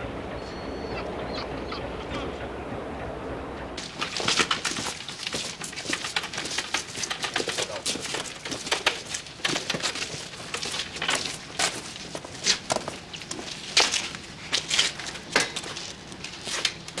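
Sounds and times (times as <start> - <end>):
low steady rumble: 0.0 - 3.8
footsteps on cobblestones: 3.8 - 17.0.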